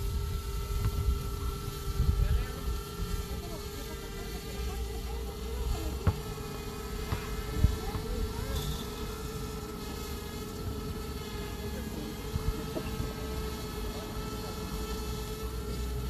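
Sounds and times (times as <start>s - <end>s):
drone propellers buzzing: 0.0s - 16.0s.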